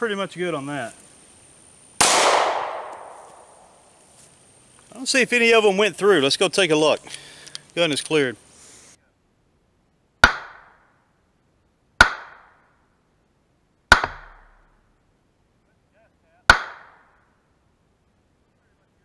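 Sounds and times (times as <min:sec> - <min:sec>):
pistol shots: 0:02.0 - 0:03.7, 0:10.2 - 0:10.8, 0:12.0 - 0:12.6, 0:16.5 - 0:17.2.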